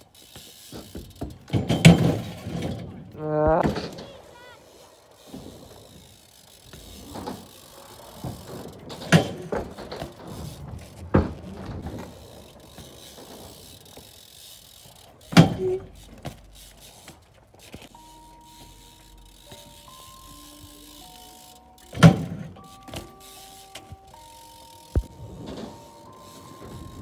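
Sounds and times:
bike tyres rolling on asphalt: 0.0 - 27.0
wheels knocking on ground: 0.1 - 4.5, 5.2 - 27.0
background music with held notes: 18.0 - 27.0.

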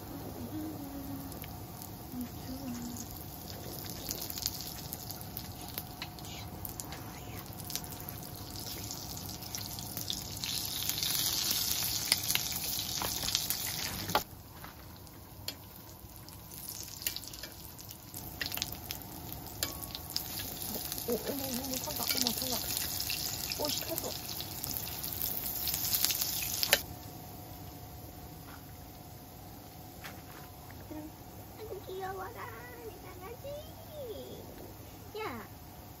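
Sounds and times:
pancakes sizzling in oil: 0.0 - 27.7.

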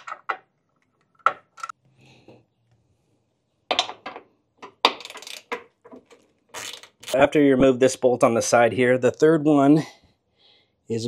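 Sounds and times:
socket ratchet clicking on metal: 4.9 - 5.6.

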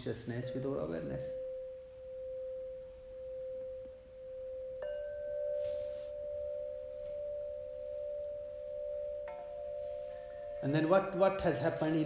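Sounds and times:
singing bowl ringing: 0.0 - 12.0
singing bowl strike: 1.4 - 11.0.

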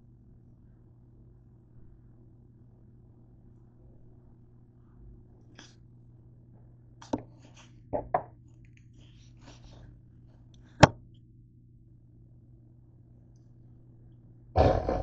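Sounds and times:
steady low hum: 0.0 - 15.0
knocks on a kitchen counter: 8.0 - 8.3.

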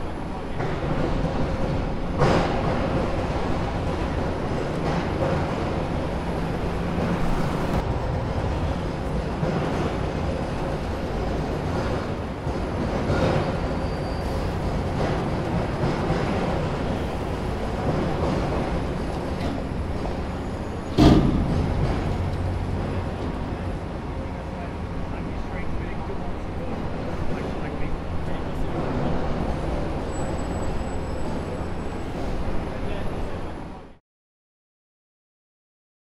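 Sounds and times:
mechanical rumble of rail vehicle: 0.0 - 34.0
sharp loud bang: 21.0 - 22.0.

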